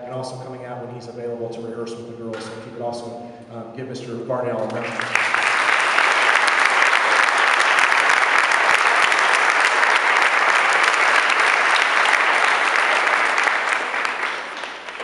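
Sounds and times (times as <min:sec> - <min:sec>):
audience applauding: 0:04.7 - 0:15.0.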